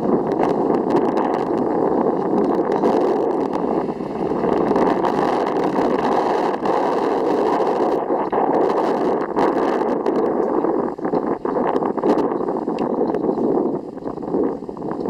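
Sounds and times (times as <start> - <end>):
ice boat runners scraping ice: 0.1 - 12.3.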